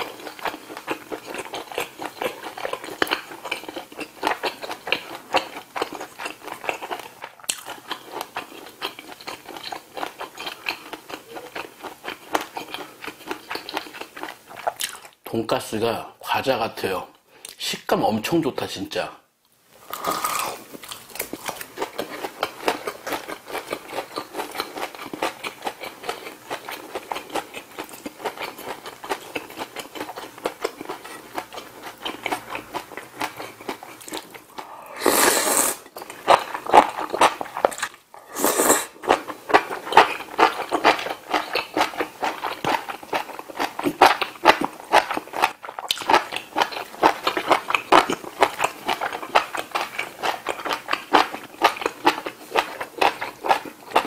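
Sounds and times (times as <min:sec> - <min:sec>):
close chewing with wet mouth clicks: 0:00.0 - 0:15.2, 0:20.8 - 0:34.7, 0:36.0 - 0:38.0, 0:39.0 - 0:54.0
slurping noodles: 0:34.0 - 0:40.1.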